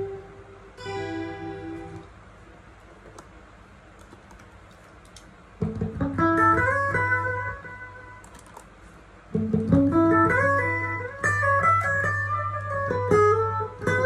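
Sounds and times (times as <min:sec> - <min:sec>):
electric guitar with string bends: 0:00.0 - 0:02.3, 0:05.6 - 0:08.7, 0:09.3 - 0:14.0.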